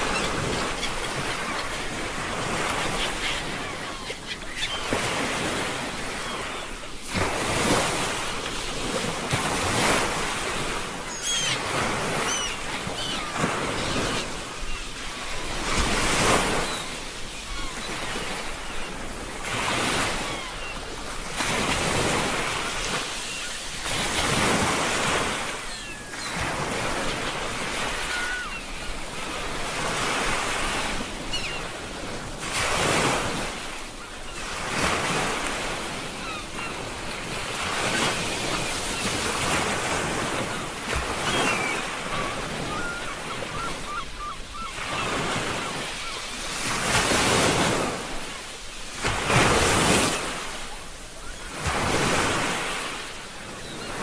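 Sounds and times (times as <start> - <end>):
ocean waves breaking: 0.0 - 54.0.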